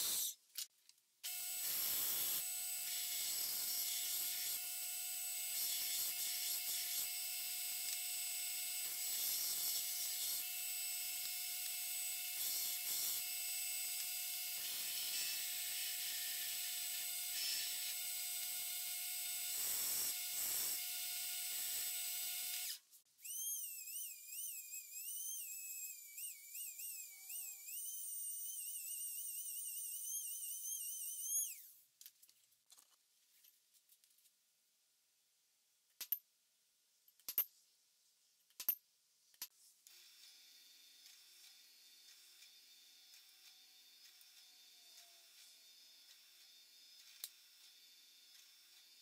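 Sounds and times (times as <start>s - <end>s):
belt grinder grinding blade: 1.3s - 31.7s.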